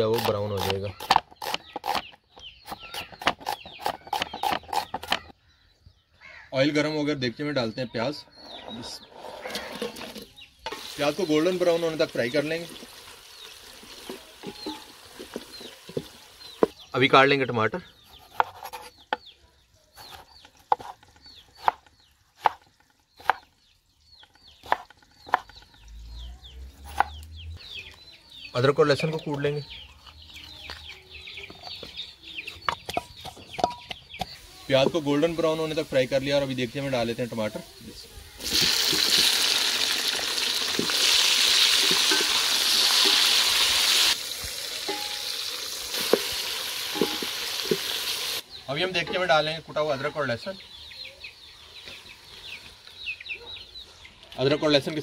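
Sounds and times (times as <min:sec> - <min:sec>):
bird chirps: 0:00.0 - 0:39.3, 0:46.9 - 0:55.0
tomatoes sizzling in hot oil: 0:10.1 - 0:16.9, 0:34.3 - 0:49.3.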